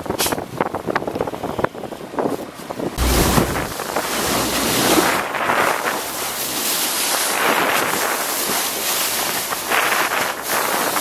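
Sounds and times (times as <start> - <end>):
wind buffeting microphone: 0.0 - 11.0
water splashing along boat bow: 2.5 - 11.0.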